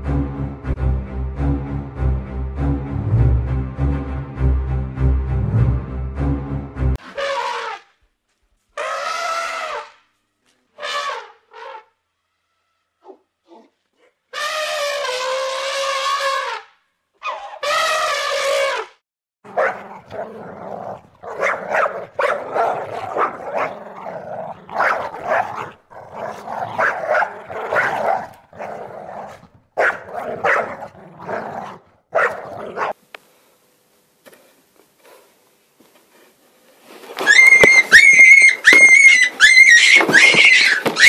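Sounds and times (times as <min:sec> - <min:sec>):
small dog barking and whimpering: 0:19.5 - 0:33.0.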